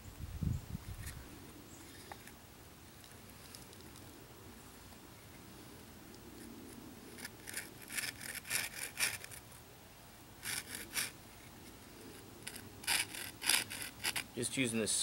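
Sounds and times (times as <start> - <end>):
saw rasping into wood: 7.5 - 9.3, 10.4 - 11.1, 12.5 - 14.3.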